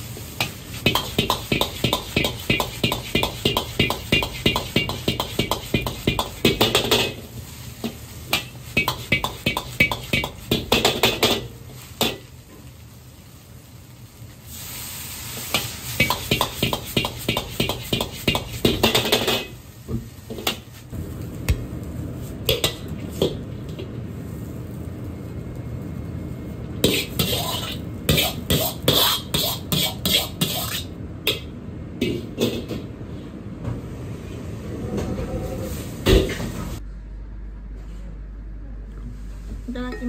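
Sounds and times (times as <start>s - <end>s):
sizzling in a hot wok: 0.0s - 32.8s
metal ladle scraping a wok: 26.8s - 30.9s.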